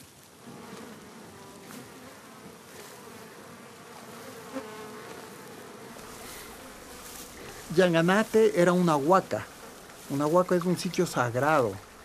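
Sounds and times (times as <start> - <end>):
flying insect buzzing: 0.0 - 12.0.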